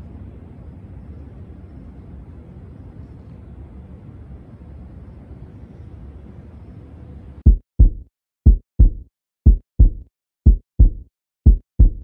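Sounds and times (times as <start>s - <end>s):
heartbeat thumps: 7.4s - 12.0s.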